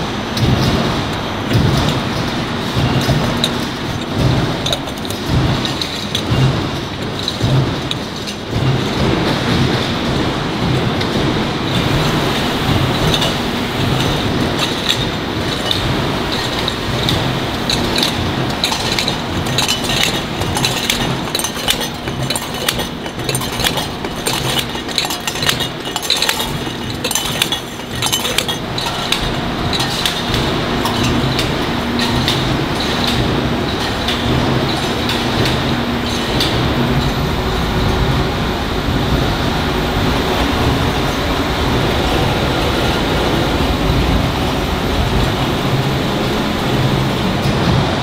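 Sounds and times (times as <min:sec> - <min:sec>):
metal canisters clinking together: 0:01.5 - 0:09.1, 0:11.8 - 0:37.3
steady machine din: 0:02.7 - 0:48.0.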